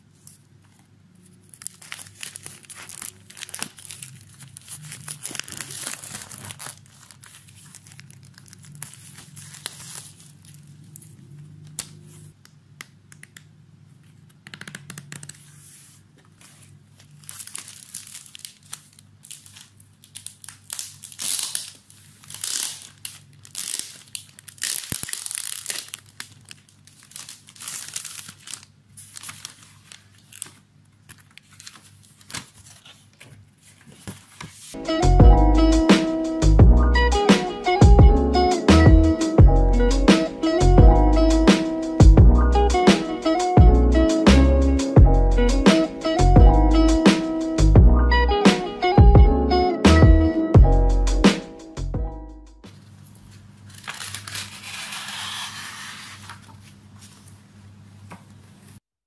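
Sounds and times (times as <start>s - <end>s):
paper rustling and sliding: 0.0s - 12.4s, 15.2s - 19.7s, 26.8s - 34.8s, 52.7s - 57.4s
plastic wrapping crinkling and tearing: 1.2s - 12.1s, 16.3s - 34.8s, 53.2s - 57.3s.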